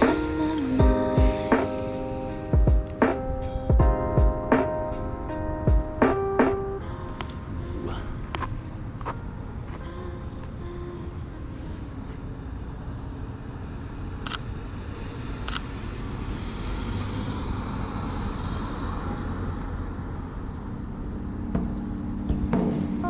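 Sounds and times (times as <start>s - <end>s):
passing cars rumble: 11.2s - 23.0s.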